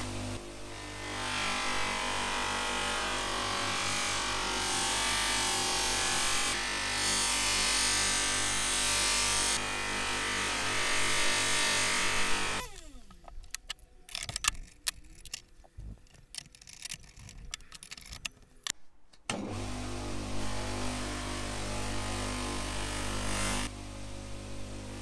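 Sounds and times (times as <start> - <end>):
polishing machine running: 0.0 - 12.7, 19.3 - 25.0
motor winding down: 11.1 - 13.2
metal clicks and knocks: 13.2 - 18.8.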